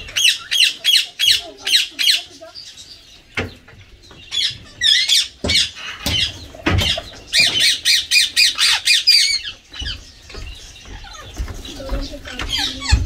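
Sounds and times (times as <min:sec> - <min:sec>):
parakeet squawking: 0:00.0 - 0:02.6, 0:04.3 - 0:10.1.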